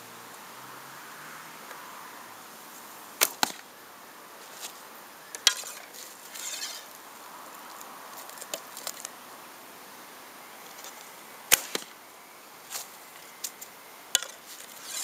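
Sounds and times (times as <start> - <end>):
arrow being nocked rustle: 4.6 - 6.9, 10.8 - 12.0.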